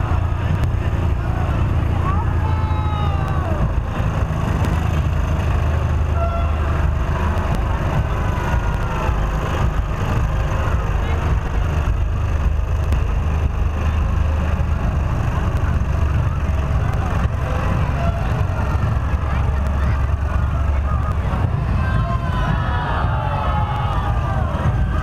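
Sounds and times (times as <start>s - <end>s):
people's voices: 0.0s - 25.0s
tractor engine running: 0.0s - 25.0s.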